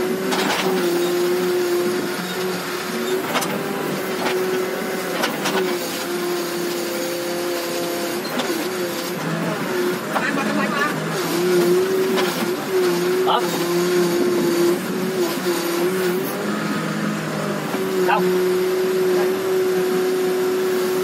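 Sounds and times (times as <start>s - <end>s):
diesel engine under load: 0.0s - 21.0s
hydraulic whine: 0.0s - 21.0s.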